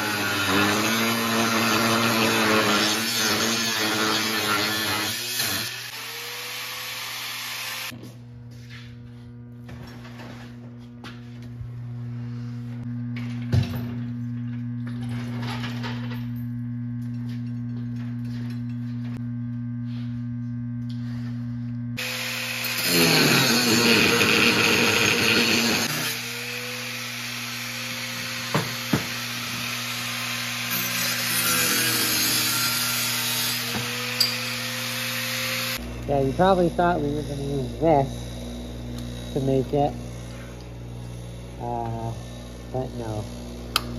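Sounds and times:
angle grinder cutting steel: 0.0s - 8.0s, 22.0s - 43.9s
steady low hum: 7.9s - 22.0s, 35.8s - 43.9s.

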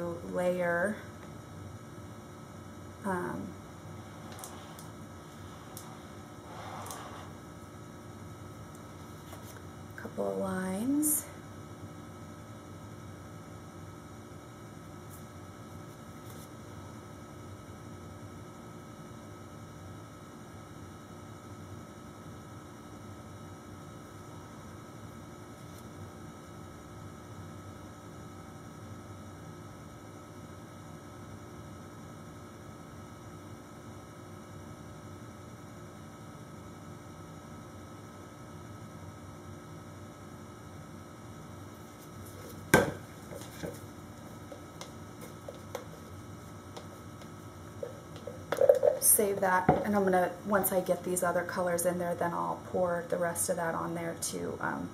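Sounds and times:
electrical hum: 0.0s - 54.9s.

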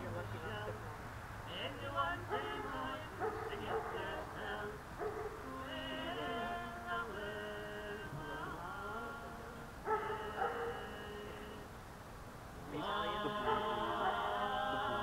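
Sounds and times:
voices in overlapping held tones: 0.0s - 11.8s, 12.5s - 15.0s.

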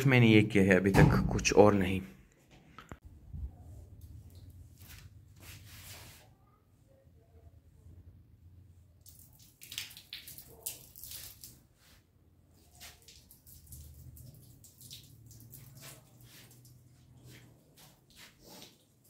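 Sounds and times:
hose water splashing on motorcycle: 9.0s - 19.0s.

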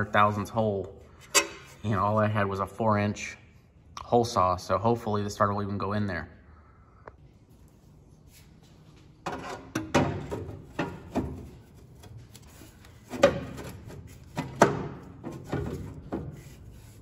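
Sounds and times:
metal clunking and scraping: 9.2s - 16.7s.

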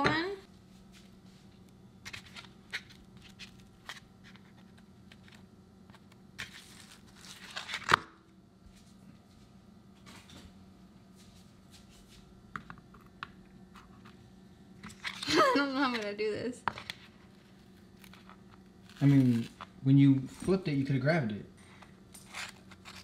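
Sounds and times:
crackling scrape of ice tray: 6.4s - 7.9s, 16.8s - 19.7s, 22.1s - 23.0s.

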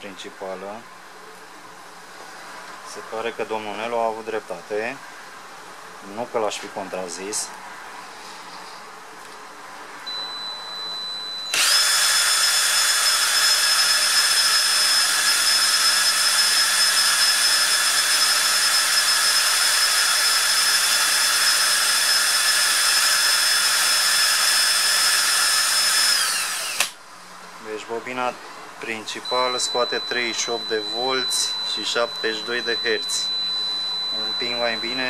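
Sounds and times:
cordless drill whining: 10.1s - 27.0s.

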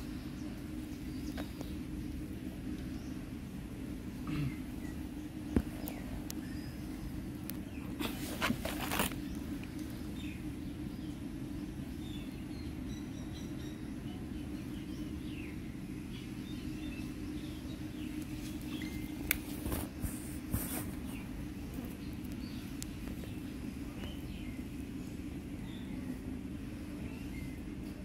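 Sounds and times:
low background hum: 0.0s - 28.0s
rustles and knocks near microphone: 7.9s - 9.2s.

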